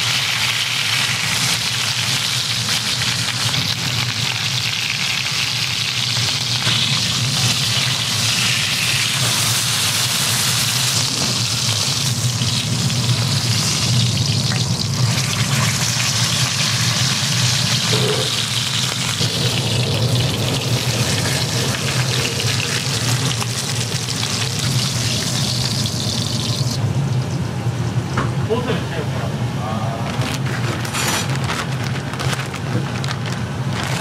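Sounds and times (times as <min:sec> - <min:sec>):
meat sizzling in a skillet: 0:00.0 - 0:26.8.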